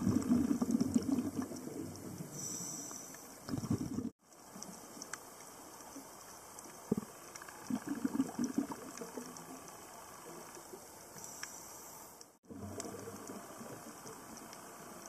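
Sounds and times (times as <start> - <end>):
gurgling bubbles: 0.0 - 2.5, 3.4 - 4.2, 6.7 - 9.8, 12.4 - 14.6
steady underwater hiss: 0.0 - 15.0
faint clicks: 2.8 - 15.0.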